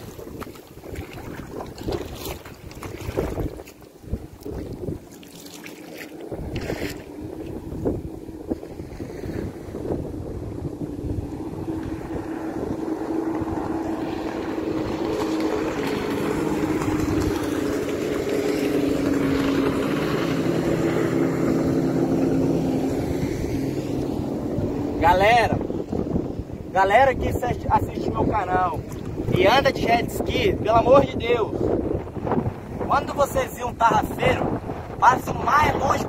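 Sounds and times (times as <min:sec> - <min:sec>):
jet ski engine humming: 0:00.0 - 0:36.0.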